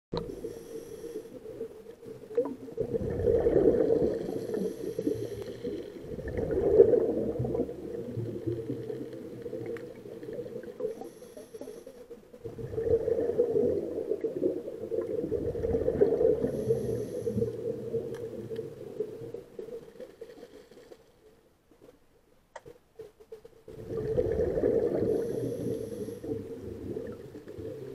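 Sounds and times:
regulator inhalation hiss: 0.3s - 1.4s, 4.2s - 5.9s, 10.8s - 12.0s, 16.4s - 17.6s, 25.1s - 26.4s
bubbling exhalation: 2.8s - 4.5s, 6.0s - 8.0s.

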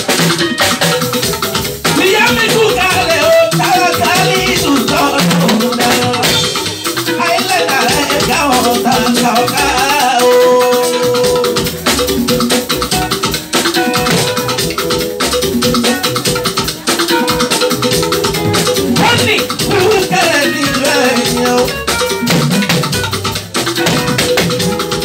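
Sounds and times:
drum kit: 0.0s - 25.0s
man singing into a microphone: 1.9s - 6.5s, 7.1s - 11.7s, 19.0s - 22.0s.

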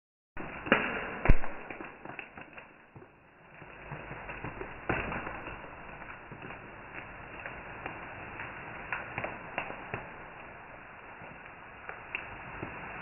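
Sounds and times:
sharp knock: 0.7s - 1.8s.

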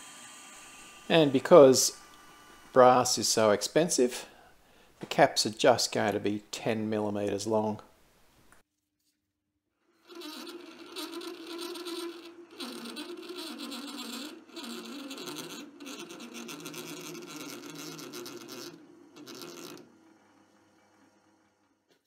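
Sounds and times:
lathe motor humming: 0.0s - 3.1s, 10.2s - 21.7s
lathe tool cutting brass: 10.1s - 20.3s.

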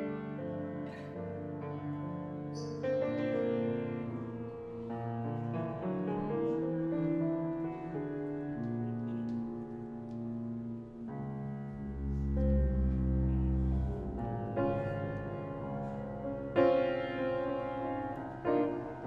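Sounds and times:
piano chords: 0.0s - 19.0s
double bass notes: 2.6s - 19.0s.

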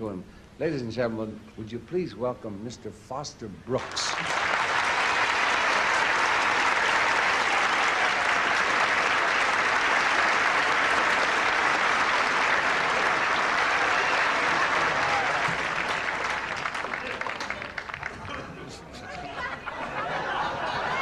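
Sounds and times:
audience applauding: 3.8s - 21.0s.

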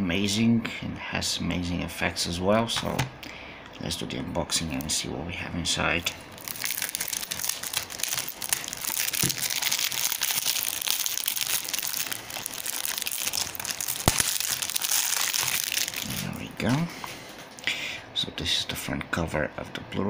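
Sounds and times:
plastic wrap crinkling: 6.0s - 17.7s.

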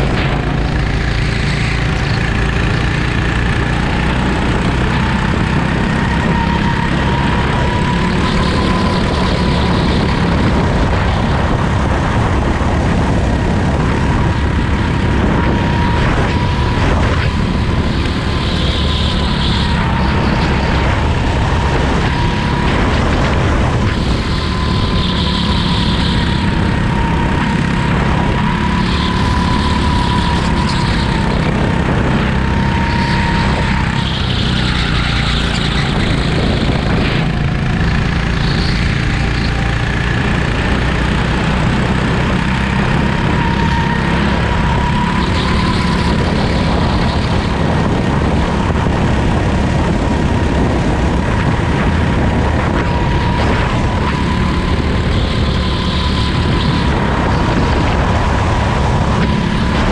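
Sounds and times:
go-kart engine running: 0.0s - 59.9s
thin whine: 0.0s - 59.9s.

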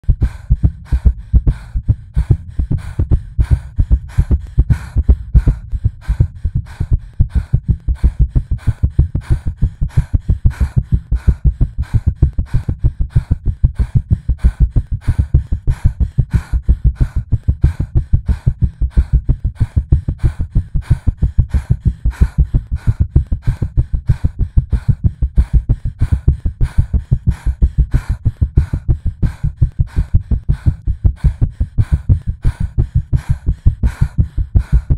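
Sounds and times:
fast heartbeat thumps: 0.0s - 34.9s.

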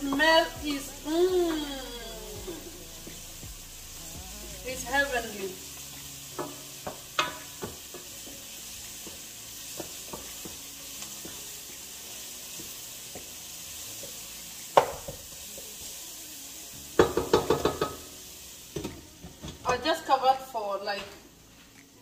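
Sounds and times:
onions and garlic sizzling: 0.0s - 22.0s
cookware knock: 14.8s - 15.2s.

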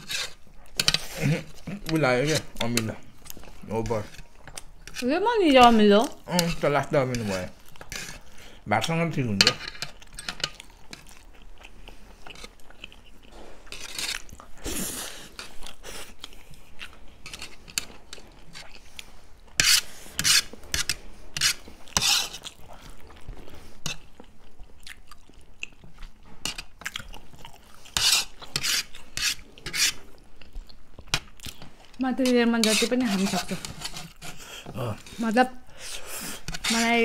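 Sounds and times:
chewing noodles: 0.0s - 5.1s, 9.7s - 32.0s.

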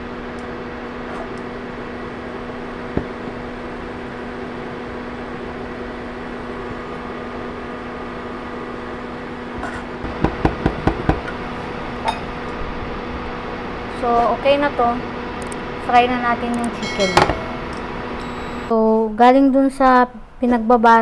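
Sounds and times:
steady hum: 0.0s - 21.0s.

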